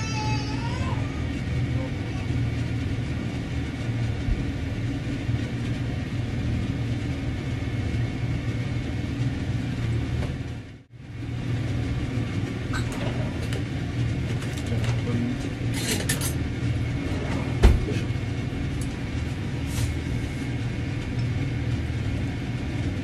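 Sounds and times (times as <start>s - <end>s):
low mechanical rumbling hum: 0.0s - 23.0s.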